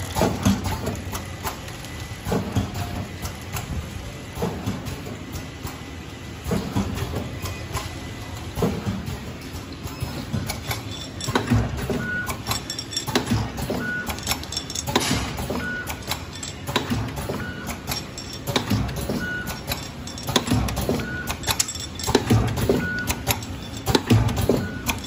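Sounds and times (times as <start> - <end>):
packing machine clattering: 0.0 - 25.0.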